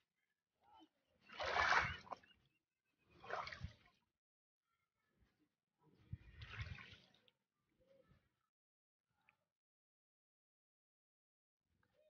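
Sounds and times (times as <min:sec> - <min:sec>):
shallow water sloshing and splashing: 0:01.2 - 0:02.3, 0:03.1 - 0:03.9.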